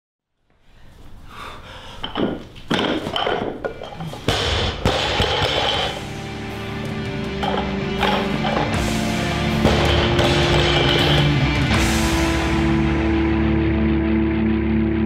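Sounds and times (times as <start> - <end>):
intro music: 5.8 - 15.0.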